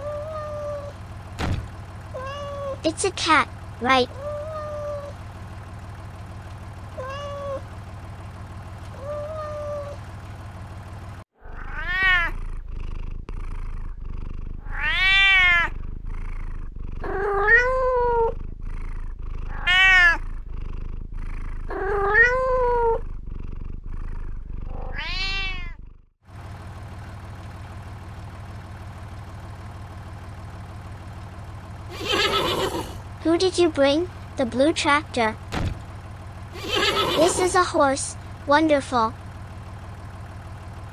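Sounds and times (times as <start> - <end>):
cat meowing: 0.0 - 0.9, 2.2 - 2.8, 4.1 - 5.1, 7.0 - 7.6, 9.0 - 10.0, 11.4 - 12.4, 14.6 - 15.7, 17.0 - 18.4, 19.5 - 20.2, 21.7 - 23.0, 24.7 - 25.8.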